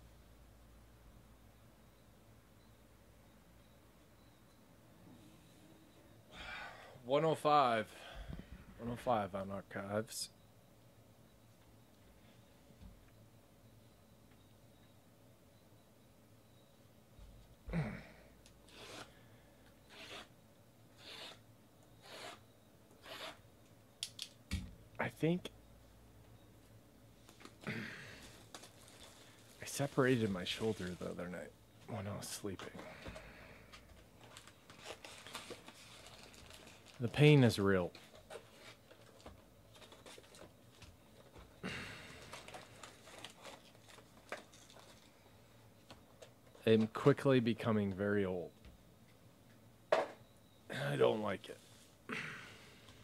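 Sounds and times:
foil packs crinkling: 28.2 - 31.2, 34.2 - 37.2, 41.9 - 45.2
hands rubbing shrink-wrapped boxes: 34.2 - 37.0.

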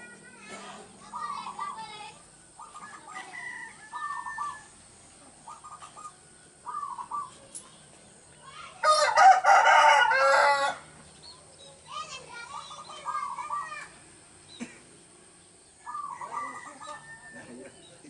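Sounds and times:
doves cooing: 0.0 - 7.9, 14.5 - 17.9
rooster crowing: 2.9 - 4.8, 8.8 - 10.9, 15.9 - 17.7.

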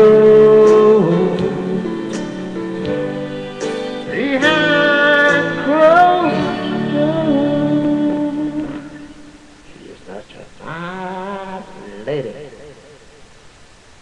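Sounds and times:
country ballad backing track: 0.0 - 9.3.

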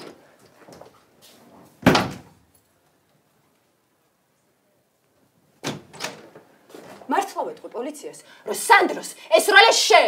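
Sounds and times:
door slamming shut: 1.8 - 2.4, 5.6 - 6.4.

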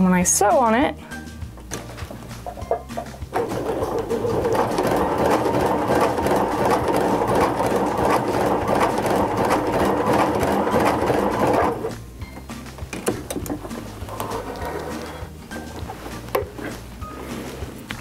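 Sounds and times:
sewing machine stitching: 3.3 - 11.9.

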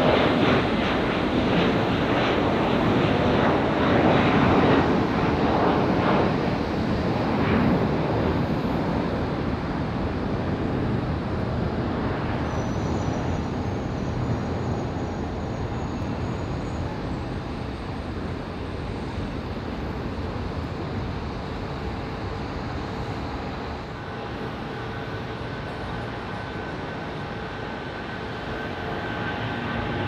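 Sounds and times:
jet engine roar: 0.0 - 30.0.

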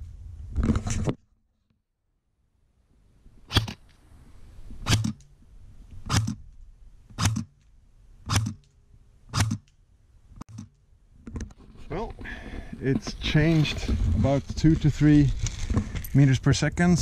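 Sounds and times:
airsoft gun shots: 3.5 - 3.8, 4.8 - 5.2, 8.3 - 8.6.

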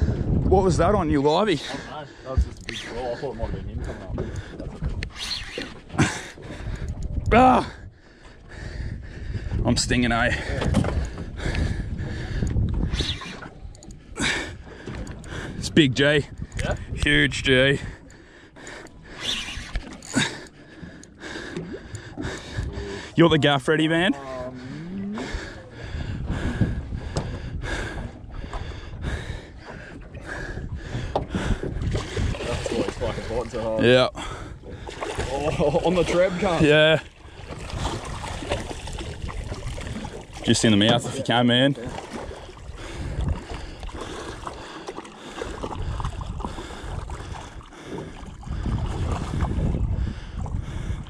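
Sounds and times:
wind and water rumble: 0.0 - 51.0.

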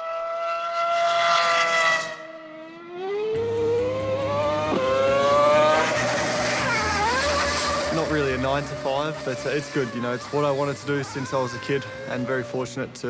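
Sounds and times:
racing car engine at high revs: 0.0 - 13.0.

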